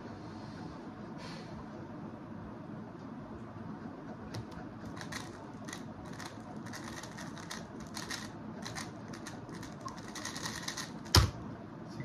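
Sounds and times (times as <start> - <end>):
speed cube plastic clicks: 4.4 - 11.3.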